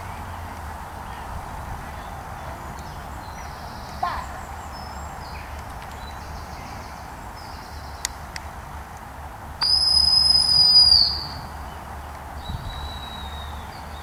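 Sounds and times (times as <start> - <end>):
long high whistle blast: 9.6 - 11.5.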